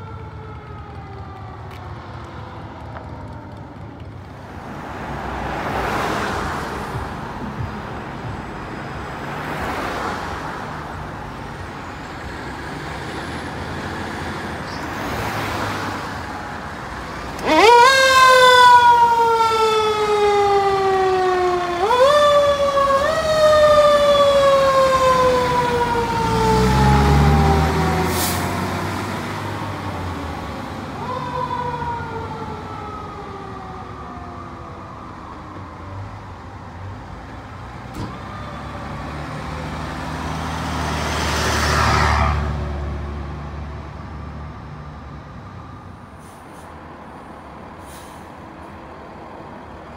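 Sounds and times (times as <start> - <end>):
fire engine siren: 0.0 - 7.7, 9.3 - 48.9
traffic noise: 0.0 - 49.9.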